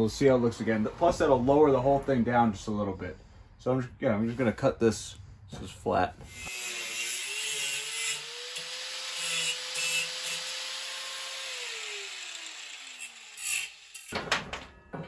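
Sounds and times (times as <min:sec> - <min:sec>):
angle grinder cutting steel pipe: 0:06.3 - 0:14.2.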